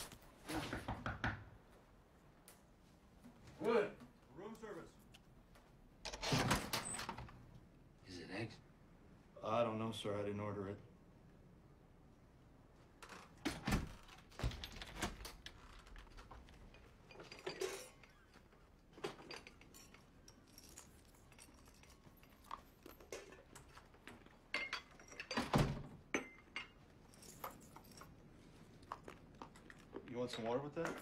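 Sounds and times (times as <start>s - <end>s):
crockery and cutlery clinking: 16.6s - 29.1s.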